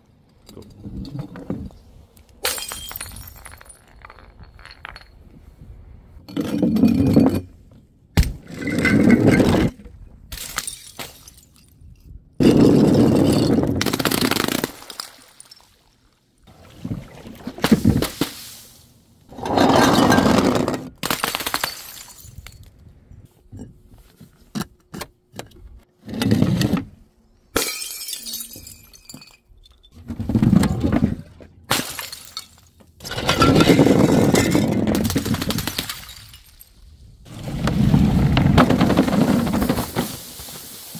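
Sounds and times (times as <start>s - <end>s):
glass bottles shattering: 2.4s - 5.2s, 10.4s - 11.8s, 21.6s - 22.7s, 27.6s - 29.9s, 31.7s - 36.8s.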